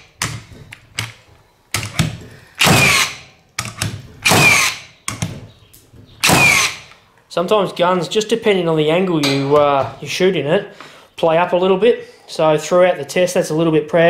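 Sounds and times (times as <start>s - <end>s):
nail gun firing: 1.8s - 5.3s, 6.2s - 6.9s.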